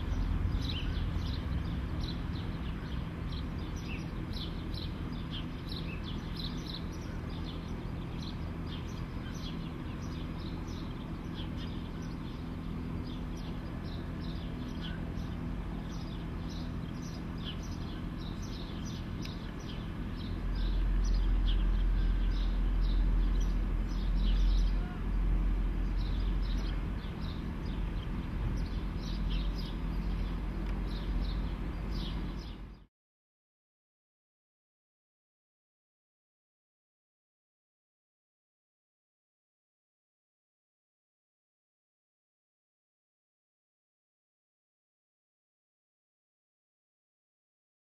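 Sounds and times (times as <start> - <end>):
small birds chirping: 0.0 - 32.9
steady low hum: 0.0 - 32.9.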